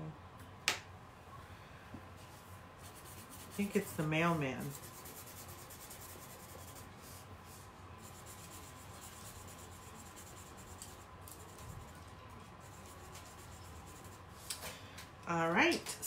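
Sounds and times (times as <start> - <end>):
drawing tool scratching on paper: 2.8 - 7.2, 8.0 - 12.0.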